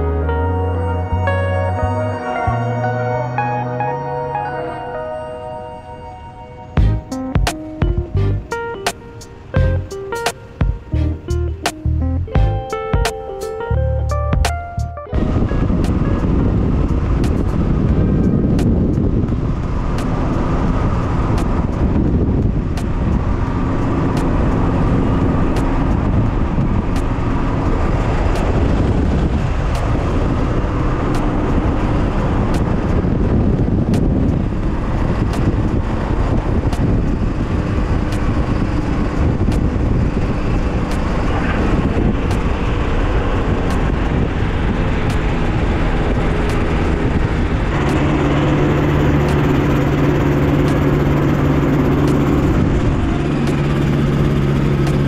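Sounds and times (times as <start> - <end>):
wind rushing on microphone: 15.1 - 55.0
light aircraft engine running: 15.2 - 55.0.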